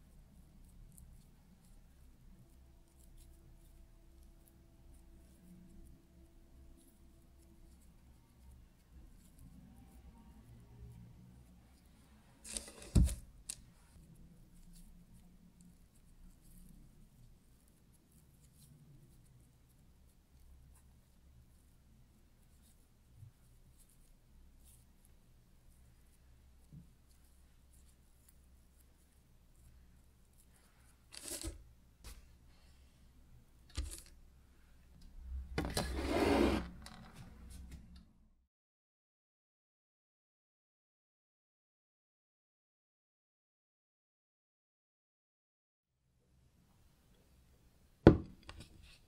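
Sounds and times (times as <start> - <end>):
baking parchment rustling: 12.4 - 13.9.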